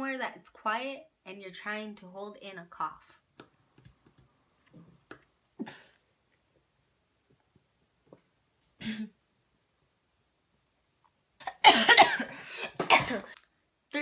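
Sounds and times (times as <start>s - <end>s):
woman holding in a cough: 11.5s - 13.4s.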